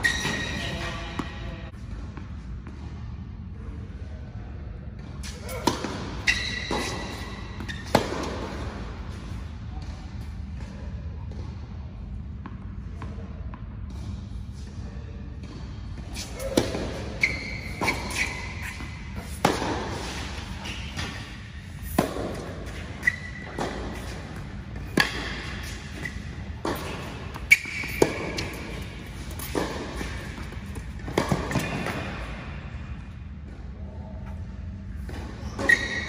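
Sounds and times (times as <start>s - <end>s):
ball bouncing on hard court: 5.0s - 8.8s, 16.4s - 32.5s
tennis ball struck by rackets: 17.8s - 20.4s, 23.5s - 32.3s.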